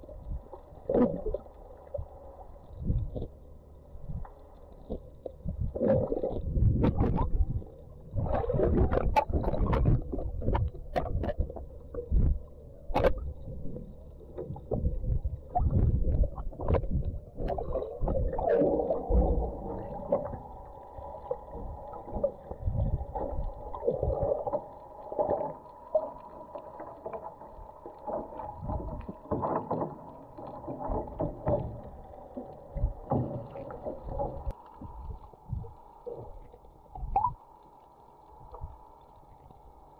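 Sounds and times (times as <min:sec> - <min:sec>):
hum through water: 0:00.0 - 0:39.9
underwater water sloshing: 0:00.0 - 0:39.9
underwater knocks and bumps: 0:02.7 - 0:03.3, 0:04.0 - 0:37.4.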